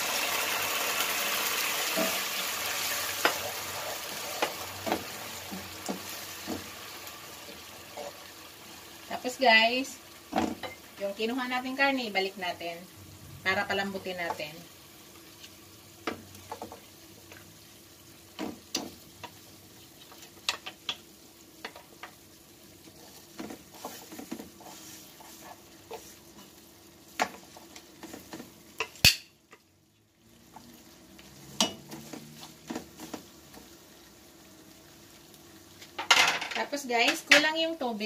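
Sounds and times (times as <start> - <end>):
faint sizzle: 0.0 - 38.0.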